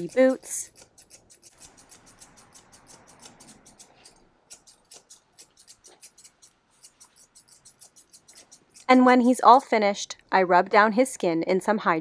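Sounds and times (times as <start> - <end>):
shears snipping fur: 0.0 - 9.7.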